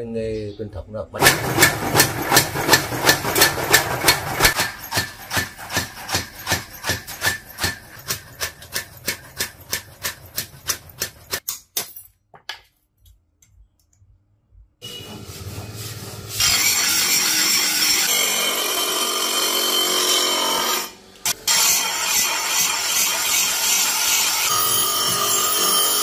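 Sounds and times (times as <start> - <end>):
power hammer striking steel: 1.2 - 11.5.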